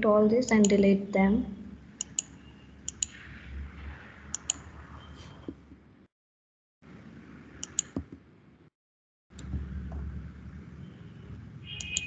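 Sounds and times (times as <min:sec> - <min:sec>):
computer mouse clicks: 0:02.0 - 0:03.2, 0:04.3 - 0:04.7, 0:07.6 - 0:08.2, 0:11.8 - 0:12.0.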